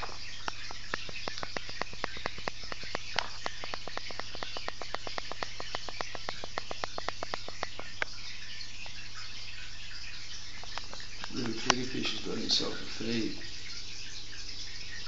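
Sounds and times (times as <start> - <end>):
fast evenly spaced clicks: 0.0 - 9.0
running water: 0.0 - 15.0.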